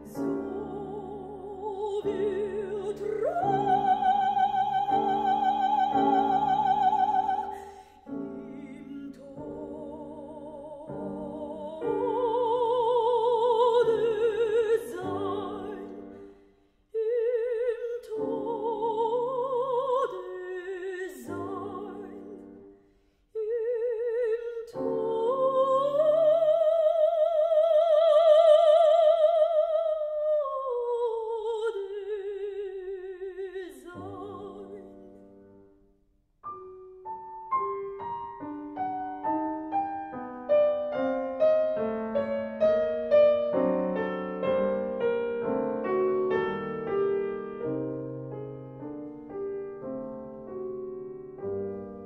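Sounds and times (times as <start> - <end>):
grand piano playing: 0.0 - 16.1, 36.4 - 52.0
soprano singing with vibrato: 0.0 - 16.3, 16.9 - 35.0.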